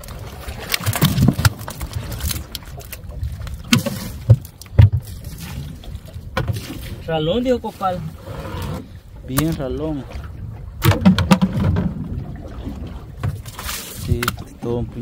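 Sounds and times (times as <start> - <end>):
fish slapping into box: 0.6 - 2.6
crate knocking and clacking: 10.8 - 12.0.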